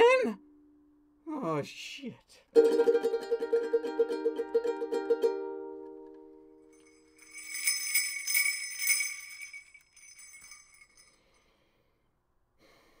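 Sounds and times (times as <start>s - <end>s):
jingle bells shaken: 6.7s - 11.4s.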